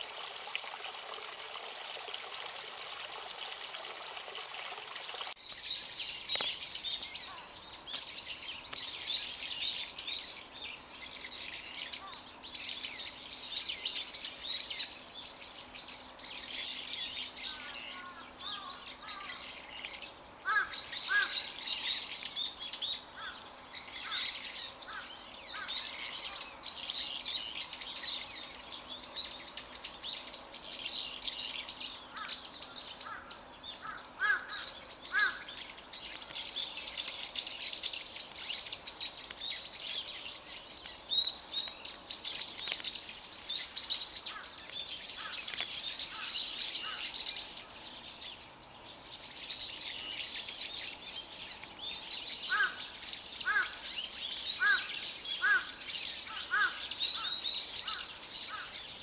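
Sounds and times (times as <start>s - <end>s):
songbirds chirping and twittering: 0.0s - 59.0s
low bird calls: 16.0s - 59.0s.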